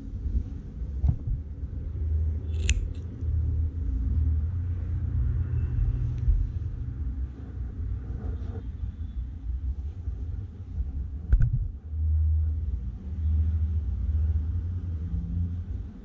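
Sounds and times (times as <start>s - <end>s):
steady low rumble: 0.0s - 16.0s
scissors snipping yarn: 2.5s - 3.1s.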